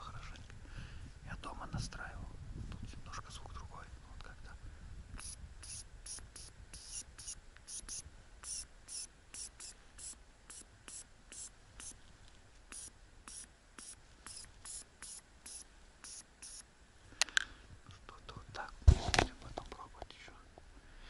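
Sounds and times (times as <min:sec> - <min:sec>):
hissy chirps of predator call: 0:05.2 - 0:12.0, 0:12.7 - 0:16.6.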